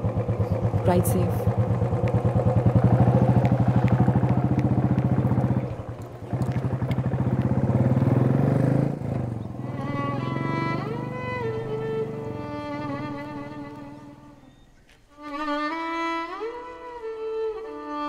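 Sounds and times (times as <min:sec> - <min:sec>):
motorcycle engine thumping: 0:00.0 - 0:14.1
violin music: 0:09.6 - 0:18.0.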